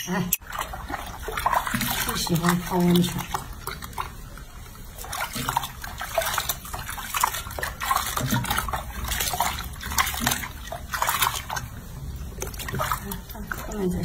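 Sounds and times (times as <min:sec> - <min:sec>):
water splashing in a sink: 0:00.4 - 0:14.0.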